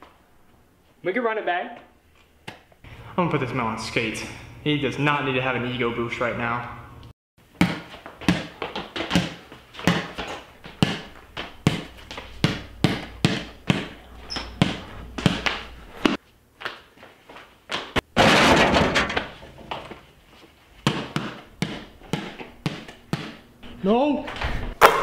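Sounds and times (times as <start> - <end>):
basketball dribbling on hard floor: 7.6 - 16.2, 20.8 - 23.4
ball hitting hoop rattling door: 18.1 - 19.8.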